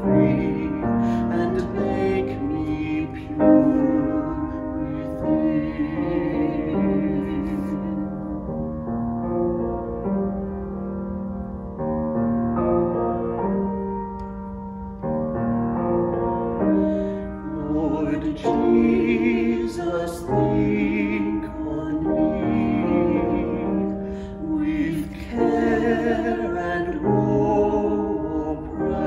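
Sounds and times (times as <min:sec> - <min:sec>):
man singing: 0:00.0 - 0:08.6, 0:17.4 - 0:29.0
piano accompaniment: 0:00.0 - 0:29.0.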